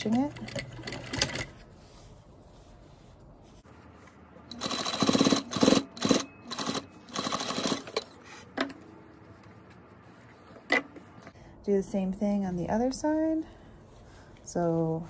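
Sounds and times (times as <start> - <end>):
sewing machine stitching: 4.5 - 8.1.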